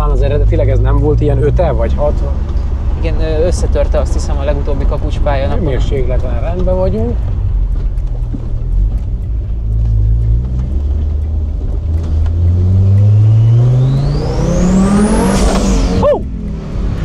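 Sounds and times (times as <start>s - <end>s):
car engine accelerating: 0.0s - 17.0s.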